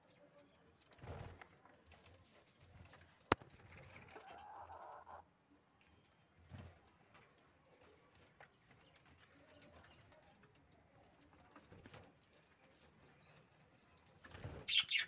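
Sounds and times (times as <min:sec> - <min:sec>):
budgerigars chirping: 0:14.7 - 0:15.0.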